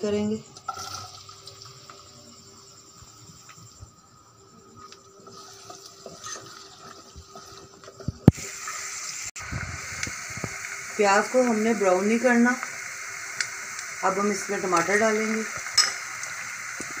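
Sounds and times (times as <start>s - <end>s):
onions frying sizzle: 0.0s - 17.0s
spatula scraping a pot: 5.2s - 8.1s.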